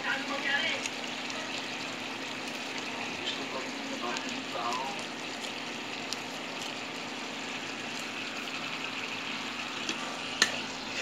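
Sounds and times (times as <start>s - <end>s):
even cooking hiss: 0.0s - 11.0s.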